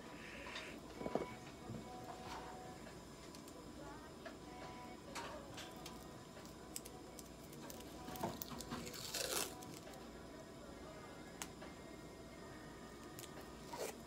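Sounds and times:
adhesive tape pulled off roll: 7.6s - 9.8s.

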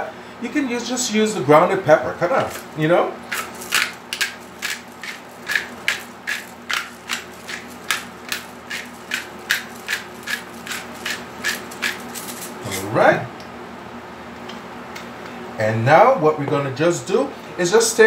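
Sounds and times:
pepper grinder grinding peppercorns: 2.2s - 13.0s.

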